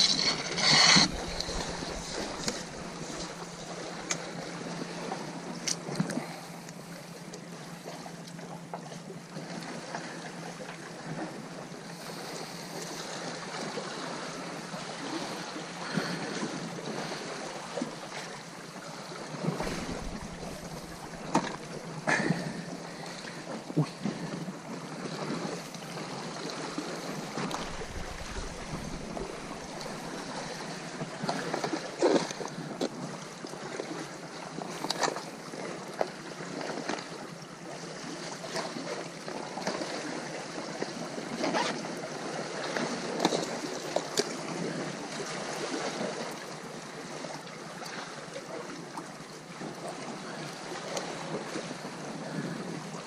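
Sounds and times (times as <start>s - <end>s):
sea surf washing: 0.0s - 5.6s, 15.0s - 32.0s
wind rumble on microphone: 19.4s - 22.6s, 27.1s - 31.3s.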